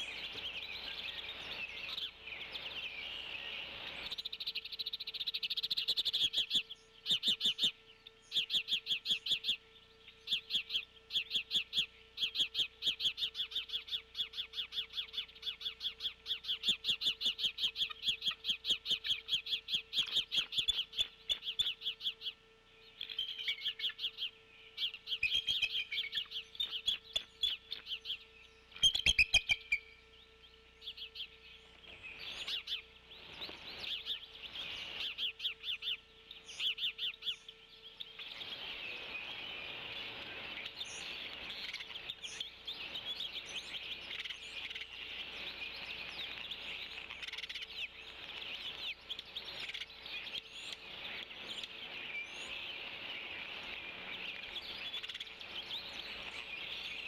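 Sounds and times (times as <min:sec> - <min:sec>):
steady hiss: 0:00.0 - 0:06.2, 0:31.7 - 0:35.5, 0:38.2 - 0:57.0
small birds chirping: 0:00.0 - 0:57.0.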